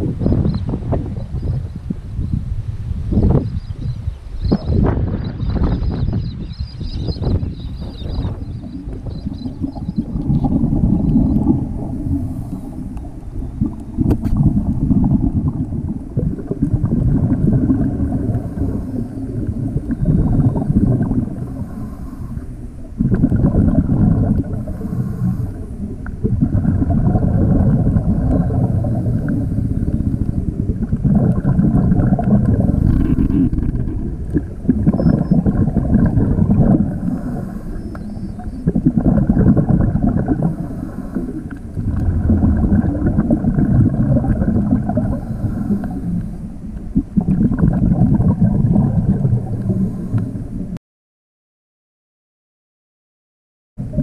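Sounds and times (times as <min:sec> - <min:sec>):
bubbling exhaled air: 0:06.8 - 0:50.8
diver breathing through regulator: 0:10.4 - 0:14.3, 0:17.2 - 0:23.3, 0:23.9 - 0:25.9, 0:26.5 - 0:30.5, 0:31.2 - 0:43.3, 0:44.4 - 0:46.6, 0:49.5 - 0:50.6.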